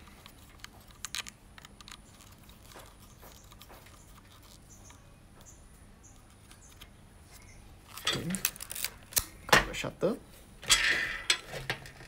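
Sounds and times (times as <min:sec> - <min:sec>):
cable tip screwing clicks: 0:00.0 - 0:05.0.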